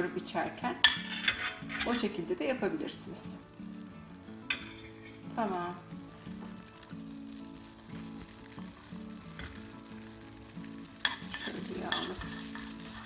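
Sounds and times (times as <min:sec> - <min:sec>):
butter sizzling in a pan: 0:00.0 - 0:13.0
metal ladle scraping a pan: 0:00.8 - 0:02.3, 0:04.4 - 0:05.4, 0:06.3 - 0:13.0.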